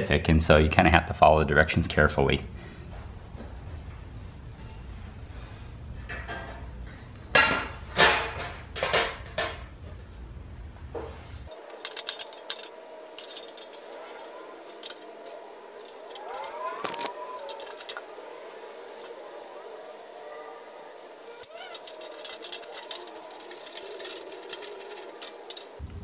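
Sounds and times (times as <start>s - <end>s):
light metallic clinks: 11.5s - 25.8s
metal panels clanking: 11.5s - 25.8s.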